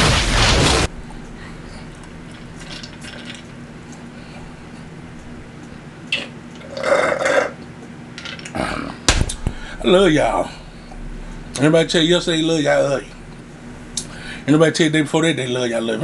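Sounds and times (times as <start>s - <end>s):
faint steady hum: 0.0s - 16.0s
person slurping and gulping: 6.1s - 7.6s.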